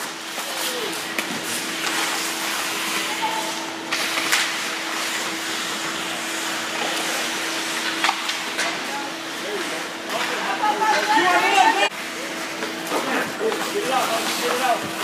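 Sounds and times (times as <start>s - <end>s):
steady hum: 0.0s - 15.0s
hockey sticks hitting puck: 7.8s - 8.8s.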